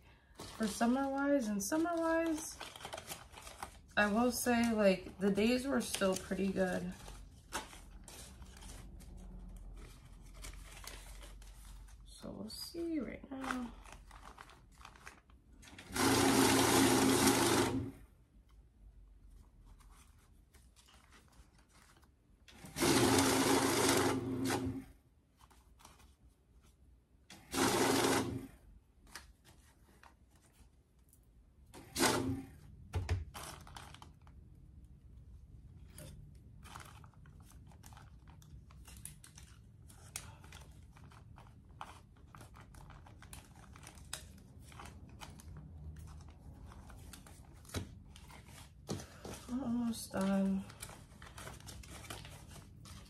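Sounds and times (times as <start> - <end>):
paper bills rustling: 0.1 - 17.6, 19.2 - 23.4, 35.8 - 53.0
banknote counter whirring: 15.9 - 17.9, 22.6 - 24.8, 27.4 - 28.5.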